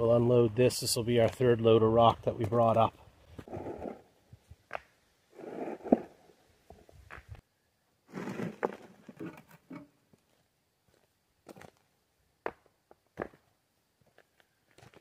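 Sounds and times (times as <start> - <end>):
rocks grating and clacking: 8.1 - 9.9.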